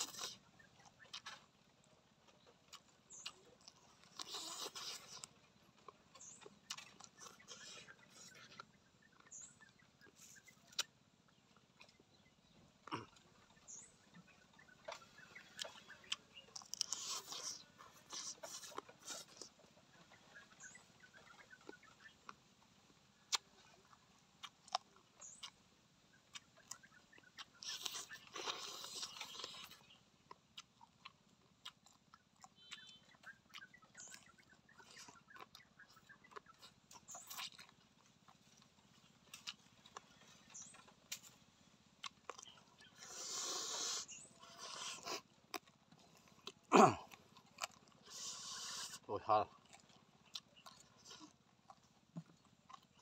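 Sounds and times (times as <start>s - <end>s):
man chewing wetly: 0.0s - 53.0s
sharp clicks while eating: 2.2s - 9.5s, 26.3s - 41.4s
short slurping: 42.9s - 45.3s, 48.0s - 49.1s.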